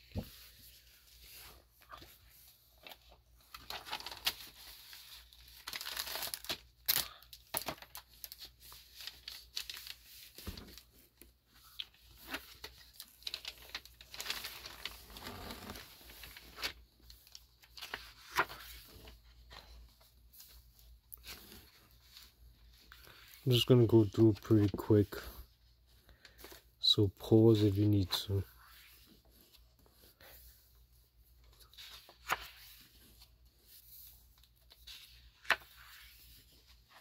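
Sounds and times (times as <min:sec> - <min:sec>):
paper rustling and crinkling: 0:00.0 - 0:37.0
glossy pages turning: 0:02.8 - 0:19.6, 0:31.6 - 0:37.0.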